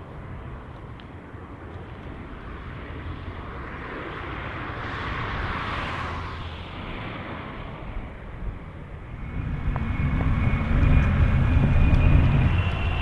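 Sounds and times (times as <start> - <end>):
jet airliner engine roar: 0.0 - 13.0.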